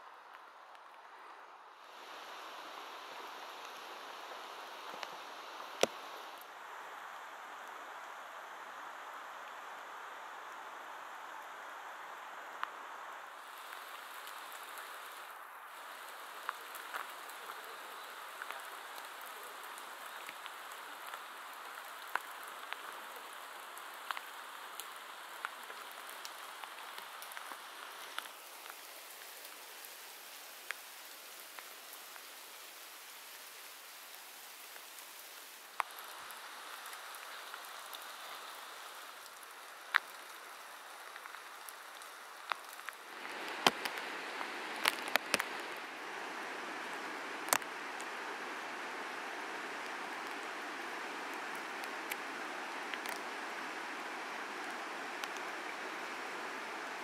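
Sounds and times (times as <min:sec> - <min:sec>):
rain hissing through trees: 0:00.0 - 0:57.0
raindrops ticking: 0:13.4 - 0:56.6.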